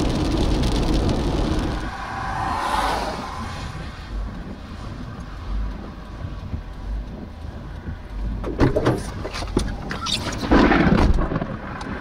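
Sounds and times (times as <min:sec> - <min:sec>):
vehicle tyre hiss: 0:00.0 - 0:06.1
low steady rumble: 0:00.0 - 0:09.9.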